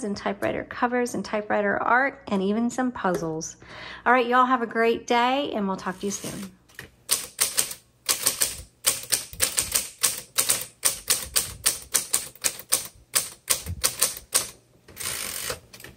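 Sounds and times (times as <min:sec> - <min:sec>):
manual typewriter typing: 0:07.1 - 0:15.9.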